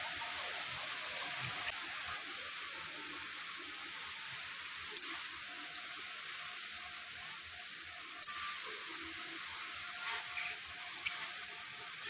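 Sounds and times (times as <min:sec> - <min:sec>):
cage bird chirp: 0:05.0 - 0:05.2, 0:08.2 - 0:08.6.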